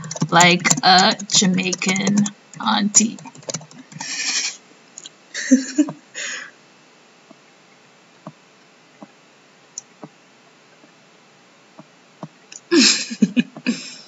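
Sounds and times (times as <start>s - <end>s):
computer mouse clicks: 3.1s - 4.2s
breathy giggling: 4.0s - 4.6s, 5.4s - 6.5s, 12.7s - 14.0s.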